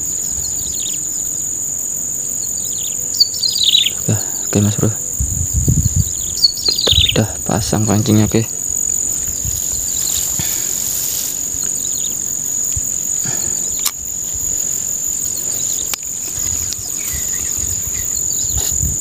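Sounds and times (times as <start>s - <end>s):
insects droning: 0.0s - 19.0s
sharp clicks: 13.4s - 14.0s.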